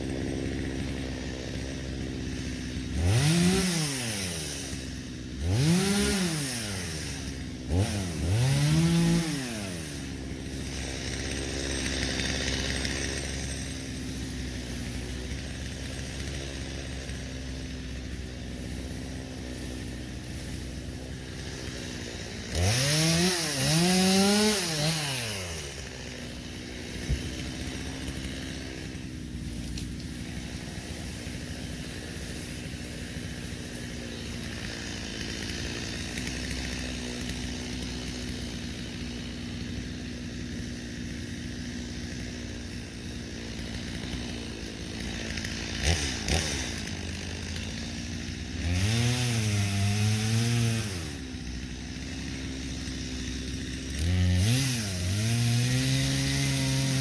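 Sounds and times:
chainsaw idling and revving: 0.0s - 57.0s.

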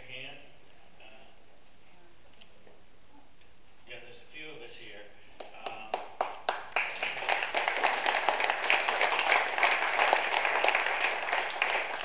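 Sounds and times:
audience clapping: 5.4s - 12.0s.

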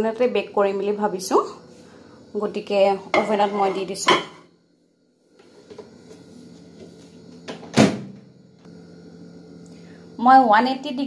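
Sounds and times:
faint steady hum: 0.0s - 11.0s
oven door shutting: 7.5s - 8.2s.

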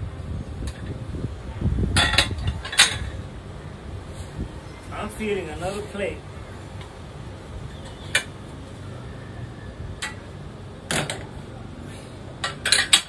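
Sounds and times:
wind rumble on microphone: 0.0s - 5.2s.

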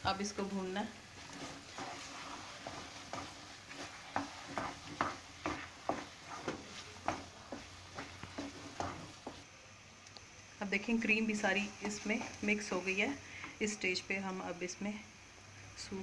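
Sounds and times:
faint frying sizzle: 0.0s - 16.0s
wooden spoon scraping metal pan: 0.8s - 9.4s, 11.2s - 13.8s.

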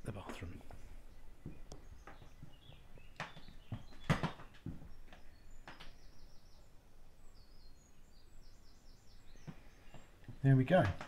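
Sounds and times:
small birds chirping: 0.0s - 11.0s
footsteps on wooden floor: 1.4s - 5.2s.

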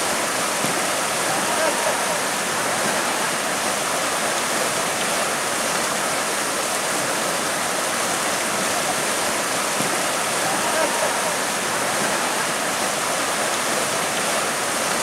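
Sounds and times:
river water rushing over rapids: 0.0s - 15.0s.

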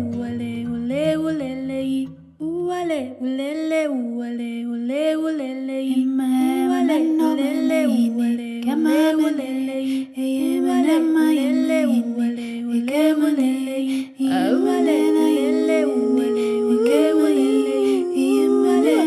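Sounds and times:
low accompaniment: 0.0s - 2.4s
second singing voice: 14.1s - 19.0s.

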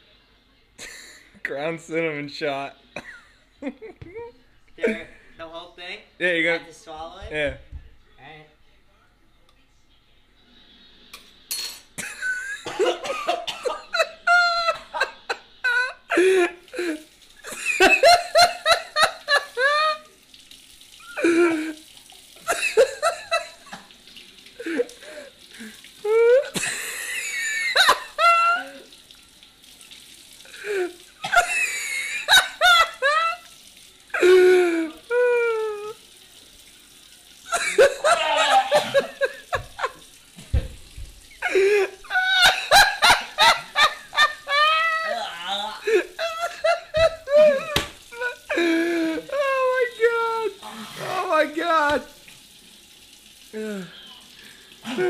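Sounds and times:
man coughing and gagging: 12.0s - 15.2s, 15.8s - 19.5s, 22.4s - 23.9s, 26.4s - 28.8s, 30.6s - 33.1s, 37.5s - 39.9s, 41.4s - 49.4s
person giggling: 13.9s - 20.1s, 37.5s - 40.0s, 41.4s - 49.9s
tap running into sink: 39.6s - 41.3s, 46.9s - 48.2s.

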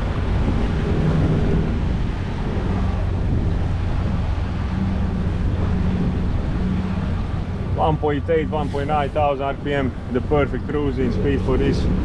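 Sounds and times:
water noise: 0.0s - 12.0s
wind: 0.0s - 12.0s
diesel engine humming: 2.2s - 11.4s.

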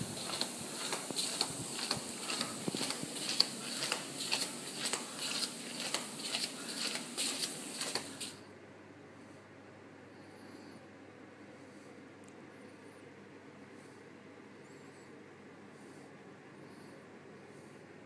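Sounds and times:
footsteps on tiled floor: 0.0s - 8.4s
steady hiss: 0.0s - 8.5s.

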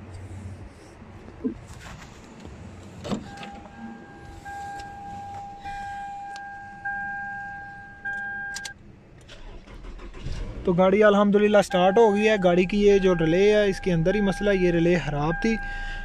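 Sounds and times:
electronic warning tone: 3.3s - 8.7s.

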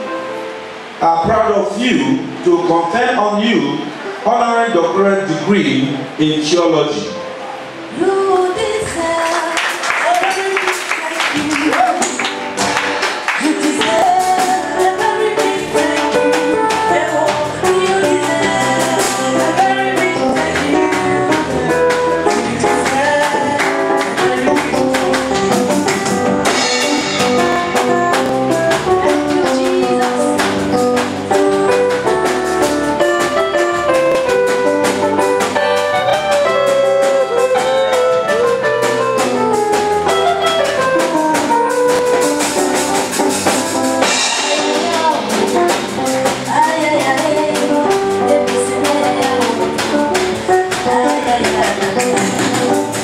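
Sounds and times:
live band music: 0.0s - 53.0s
drum kit: 8.6s - 53.0s.

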